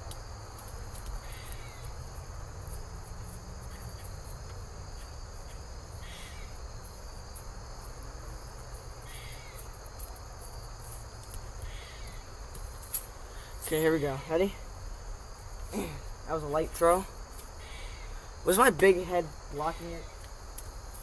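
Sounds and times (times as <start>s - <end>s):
insects chorus: 0.0s - 21.0s
short calls: 6.0s - 6.6s, 15.5s - 20.3s.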